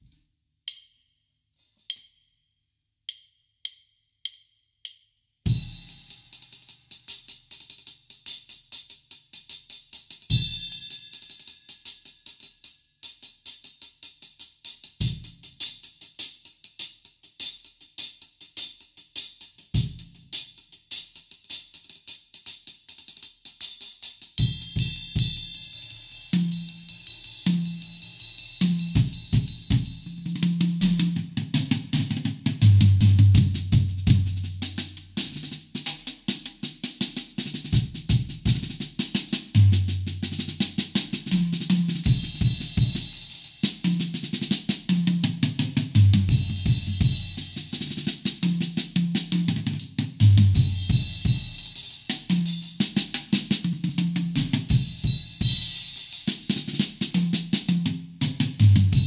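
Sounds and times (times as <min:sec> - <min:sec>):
hi-hat and cymbal rhythm: 0:03.1 - 0:59.0
bass drum accents: 0:32.6 - 0:34.9.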